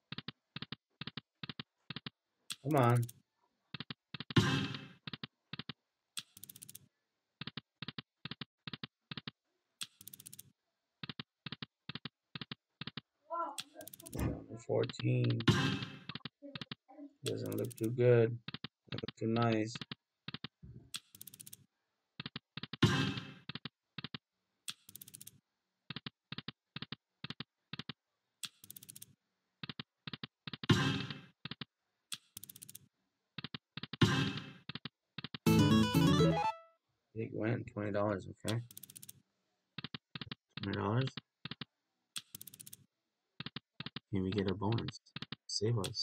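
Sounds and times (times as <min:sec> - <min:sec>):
computer key clicking: 0:00.1 - 0:03.2, 0:05.1 - 0:06.8, 0:07.4 - 0:13.0, 0:13.6 - 0:14.2, 0:16.1 - 0:19.2, 0:19.8 - 0:21.6, 0:23.5 - 0:30.7, 0:31.4 - 0:32.8, 0:38.5 - 0:39.2, 0:39.8 - 0:42.8
slot machine rattle: 0:35.5 - 0:36.6.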